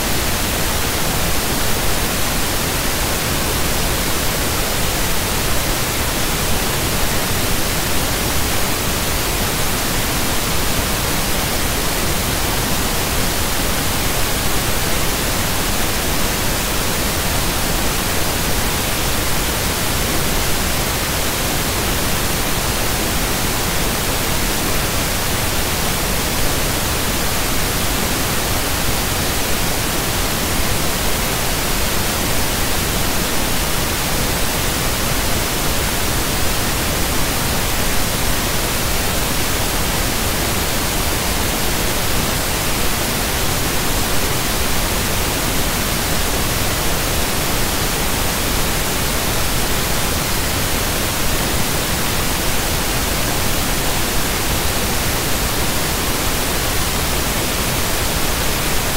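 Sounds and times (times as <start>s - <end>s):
loud static hiss: 0.0s - 58.9s.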